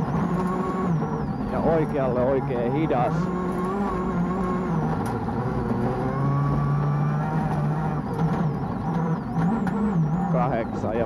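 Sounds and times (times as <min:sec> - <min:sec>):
rally car engine from inside cabin: 0:00.0 - 0:11.0.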